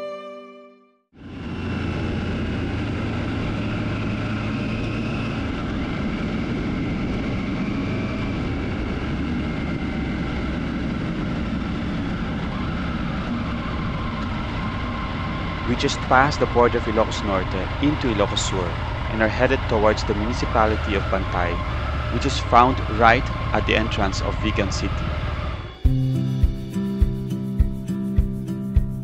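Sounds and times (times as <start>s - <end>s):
violin music: 0.0s - 1.1s, 15.6s - 29.0s
motorcycle engine and road noise: 1.2s - 28.3s.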